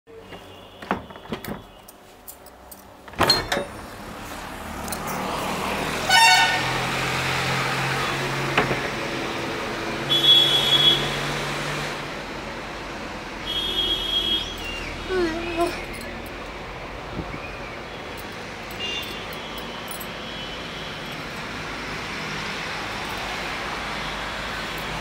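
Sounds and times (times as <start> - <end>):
road traffic: 0.1 - 25.0
vehicle horn: 6.1 - 6.8, 10.1 - 11.2, 13.4 - 14.7.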